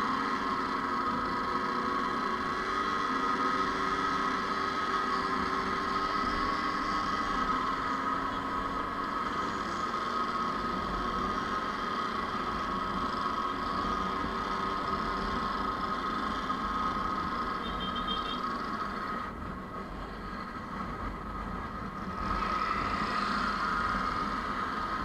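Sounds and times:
motorcycle engines running: 0:00.0 - 0:25.0.

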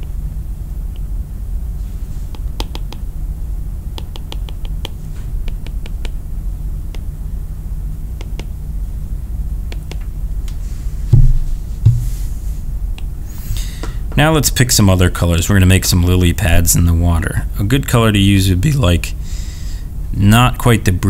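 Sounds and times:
steady low hum: 0:00.0 - 0:21.0
taps on touchscreen glass: 0:02.3 - 0:03.0, 0:04.0 - 0:06.2.

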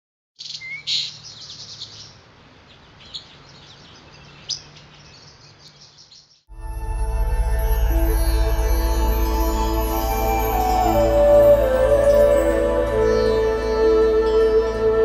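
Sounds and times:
birds chirping: 0:00.4 - 0:06.5, 0:09.6 - 0:15.0
music: 0:06.5 - 0:15.0.

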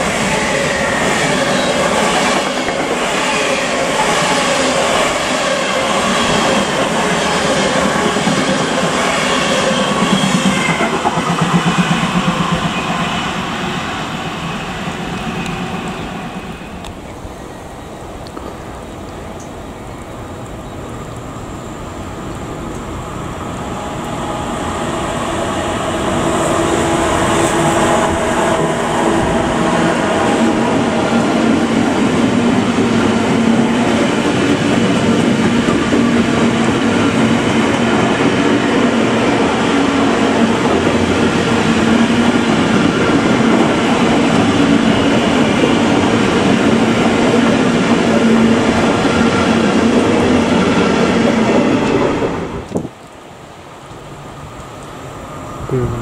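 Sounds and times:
freight train rolling past: 0:00.0 - 0:55.8.

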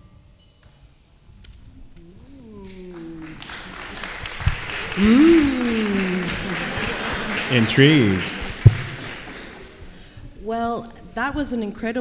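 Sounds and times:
audience applause: 0:02.2 - 0:10.1
whoops and cheers: 0:02.6 - 0:09.7.

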